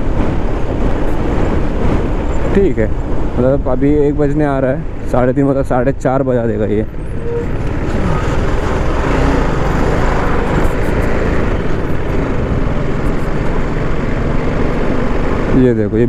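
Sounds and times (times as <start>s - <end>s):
wind and road noise: 0.0s - 16.0s
motorcycle engine running: 7.6s - 15.5s.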